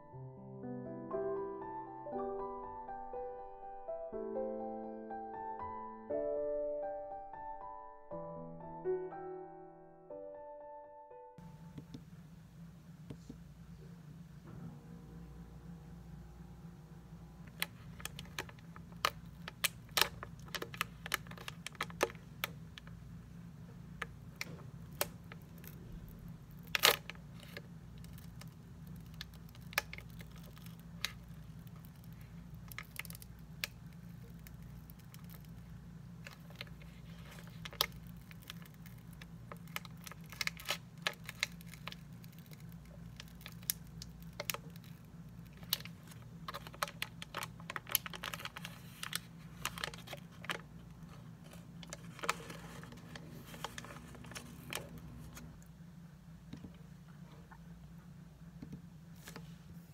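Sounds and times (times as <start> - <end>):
low steady hum: 11.4 - 59.9
plastic wrapper crinkling: 17.4 - 23.0, 23.9 - 55.6.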